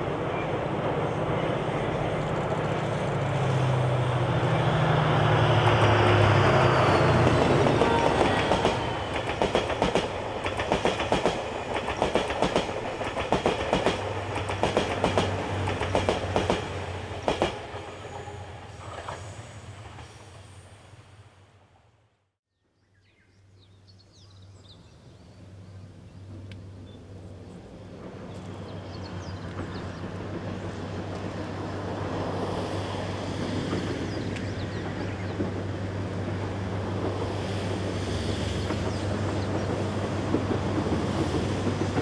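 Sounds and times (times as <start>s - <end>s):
diesel locomotive engine hum: 0.0s - 22.2s, 24.8s - 42.0s
train wheels clicking over rail joints: 5.3s - 18.0s, 28.0s - 42.0s.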